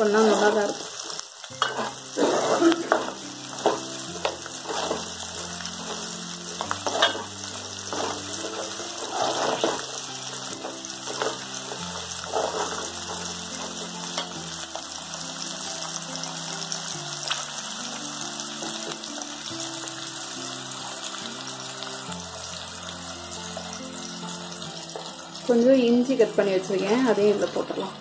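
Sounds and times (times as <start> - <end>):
background music low notes: 0.0 - 28.0
garlic sizzling in hot oil: 0.0 - 28.0
spoon scraping and stirring: 1.6 - 5.2, 5.8 - 9.9, 11.0 - 14.4.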